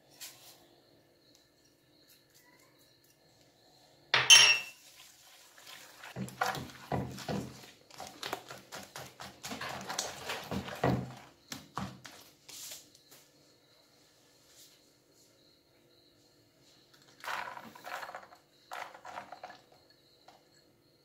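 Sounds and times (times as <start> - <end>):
spoon clinking against bowl: 4.2 - 4.8
batter swishing as stirred: 4.8 - 12.9.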